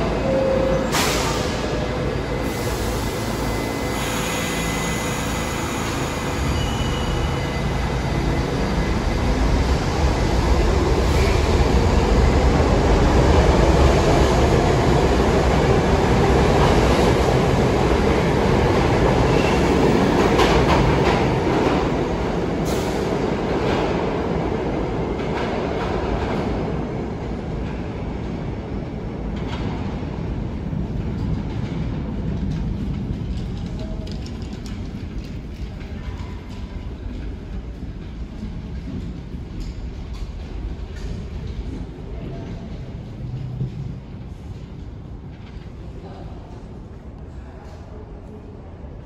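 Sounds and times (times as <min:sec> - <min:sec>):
subway train rumble: 0:00.0 - 0:49.0.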